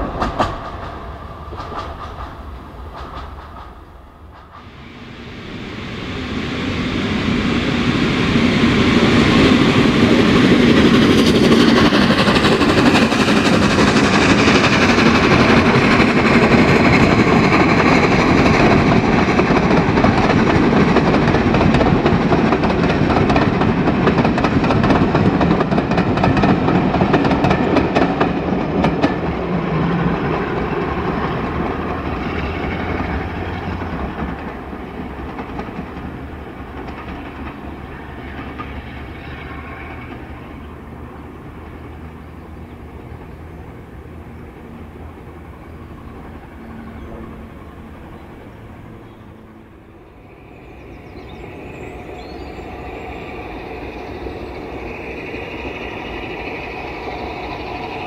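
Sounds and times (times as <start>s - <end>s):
wheels clicking over rail joints: 0.0s - 4.7s, 11.0s - 43.4s
steam train passing: 0.0s - 58.0s.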